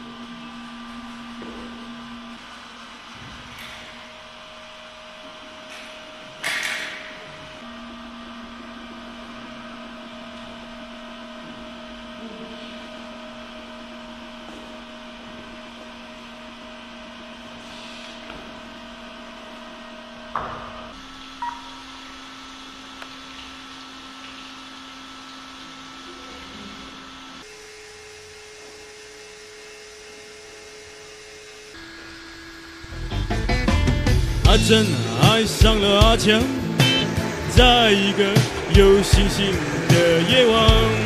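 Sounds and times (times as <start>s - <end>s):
small electric motors whining: 20.9s - 41.0s.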